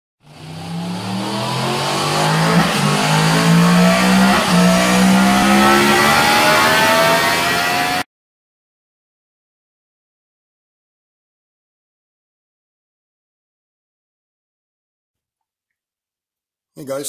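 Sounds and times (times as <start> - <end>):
vehicle engine accelerating: 0.2 - 8.1.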